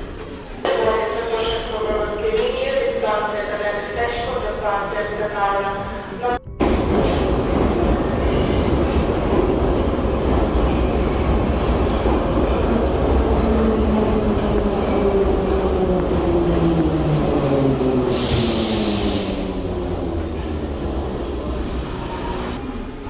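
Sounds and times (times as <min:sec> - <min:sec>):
loud hiss burst: 0:18.1 - 0:19.5.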